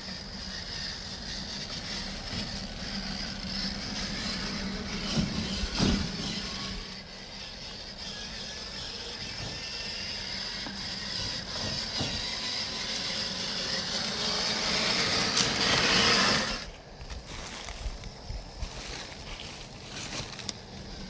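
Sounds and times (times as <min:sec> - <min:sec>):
toy car electric motor whining: 0:00.0 - 0:21.0.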